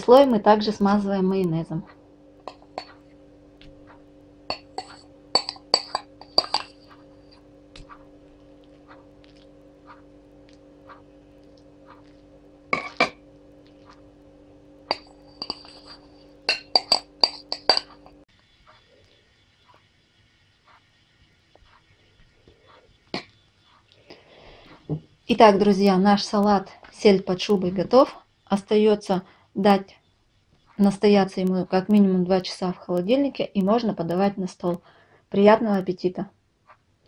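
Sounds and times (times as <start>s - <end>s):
faint steady hum: 0.0s - 37.0s
metal spoon clinking on bowl: 2.4s - 3.0s, 4.5s - 7.0s, 12.7s - 13.2s, 14.9s - 18.2s.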